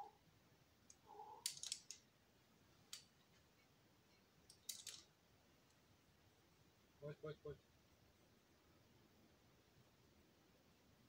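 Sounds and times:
faint clicks and scrapes: 0:00.9 - 0:02.0, 0:02.9 - 0:05.8.

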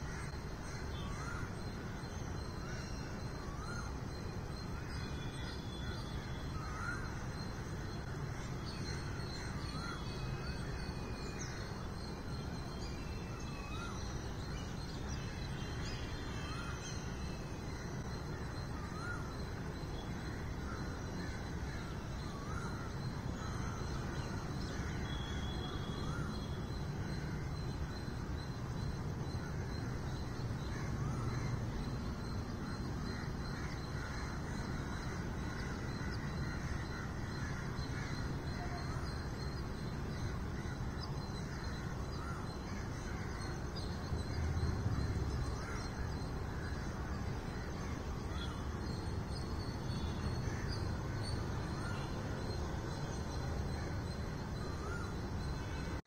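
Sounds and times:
crow-like caws: 0:00.0 - 0:10.6, 0:29.2 - 0:39.5, 0:49.9 - 0:52.5
city traffic hum: 0:22.9 - 0:56.0.

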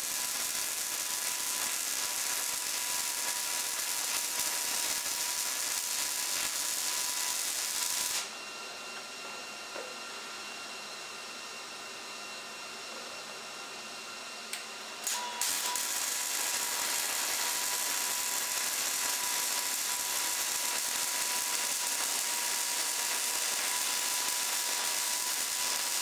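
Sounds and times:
welding arc crackling and hissing: 0:00.0 - 0:08.3, 0:15.0 - 0:26.0.

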